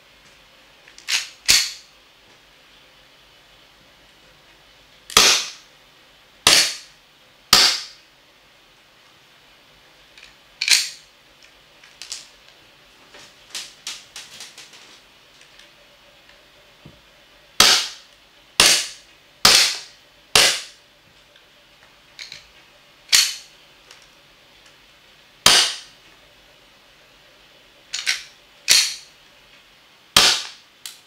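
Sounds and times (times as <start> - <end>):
airsoft pistol shots: 5.1 - 5.6, 6.4 - 6.9, 7.5 - 8.0, 17.6 - 20.8, 25.4 - 25.9, 30.2 - 30.6.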